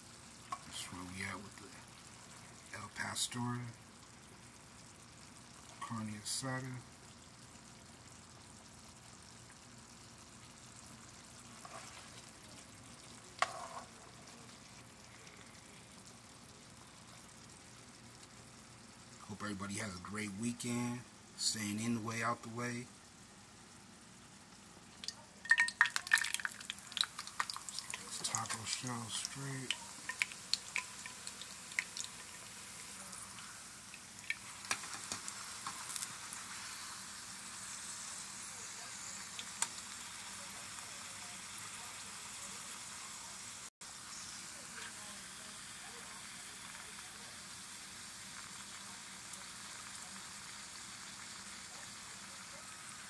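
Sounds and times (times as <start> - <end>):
meat sizzling in a skillet: 0.0 - 19.2, 23.4 - 53.0.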